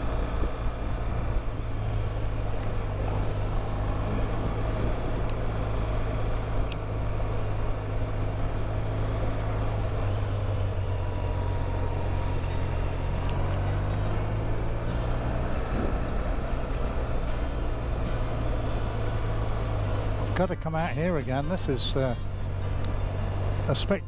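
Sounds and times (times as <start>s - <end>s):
motorcycle engine cruising: 0.0s - 24.0s
wind and road noise: 0.0s - 24.0s.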